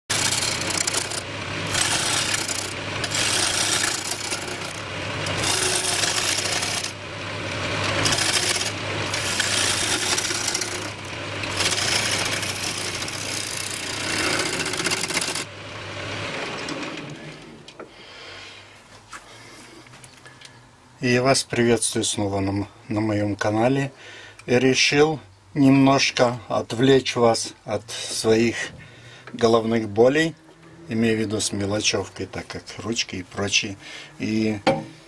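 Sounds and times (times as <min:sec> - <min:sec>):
gouge cutting wood on lathe: 0:00.0 - 0:17.4
lathe motor humming: 0:00.0 - 0:17.7.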